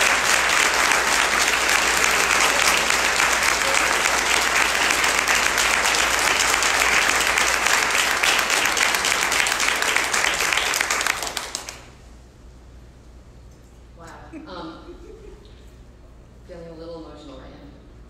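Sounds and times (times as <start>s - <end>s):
audience applause: 0.0s - 12.0s.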